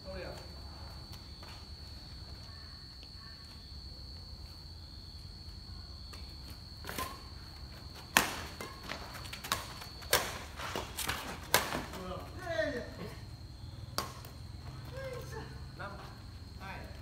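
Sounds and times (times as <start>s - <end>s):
racket hitting shuttlecock: 6.8s - 7.2s, 8.1s - 12.0s.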